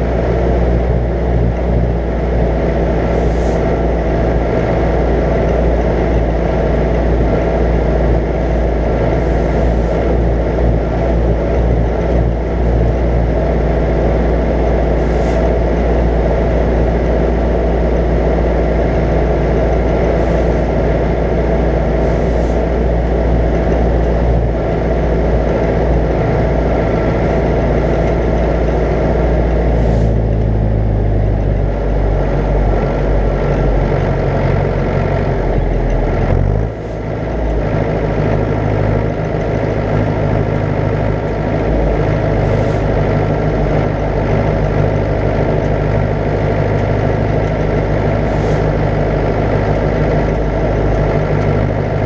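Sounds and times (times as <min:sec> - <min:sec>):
tractor diesel engine under load: 0:00.0 - 0:52.0.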